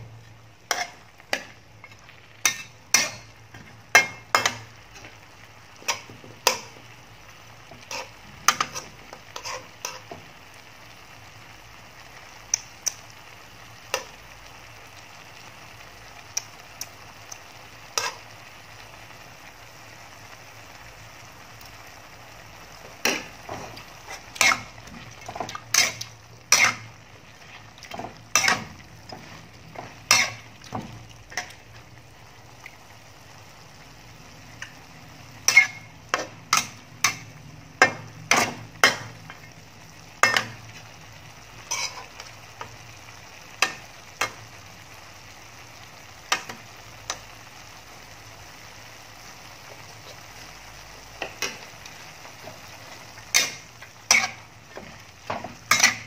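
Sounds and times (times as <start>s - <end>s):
meat and onions sizzling in a pan: 0.0s - 56.0s
spatula knocking and scraping a pan: 0.7s - 5.2s, 5.8s - 6.9s, 7.7s - 10.3s, 22.8s - 31.8s, 35.4s - 39.5s, 40.2s - 40.8s, 41.6s - 42.8s, 52.4s - 56.0s.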